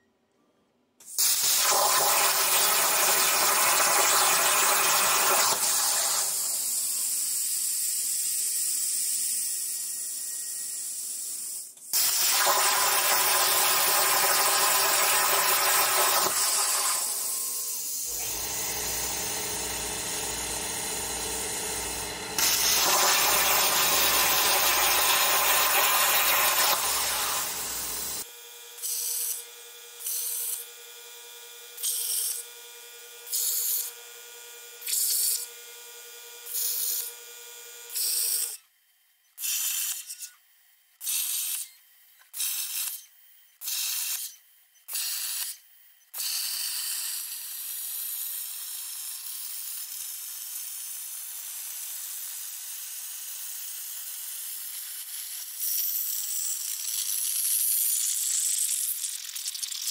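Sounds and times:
plasma torch hissing: 0:01.1 - 0:28.2
air compressor hum: 0:12.0 - 0:28.3.

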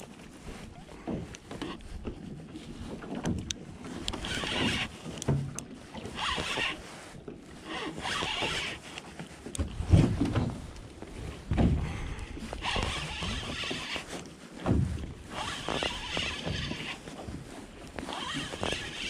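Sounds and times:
water slapping against boat hull: 0:00.0 - 0:19.0
heavy thump: 0:11.5 - 0:12.0.

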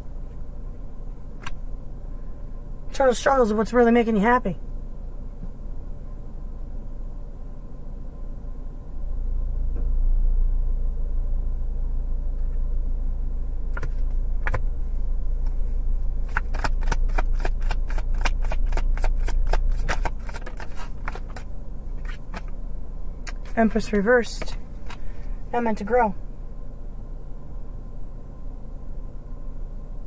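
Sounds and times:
low steady rumble: 0:00.0 - 0:30.0
cards being shuffled: 0:13.8 - 0:14.6, 0:16.2 - 0:22.6, 0:24.4 - 0:25.1.

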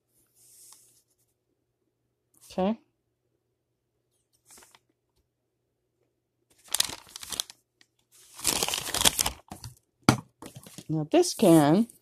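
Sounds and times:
paper receipt rustling: 0:04.4 - 0:04.8, 0:06.5 - 0:07.6, 0:08.2 - 0:09.7.

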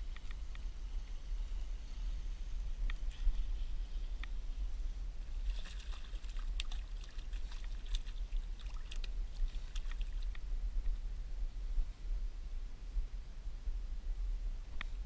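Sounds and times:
steady low rumble: 0:00.0 - 0:15.0
fish splashing at water surface: 0:05.4 - 0:10.3.

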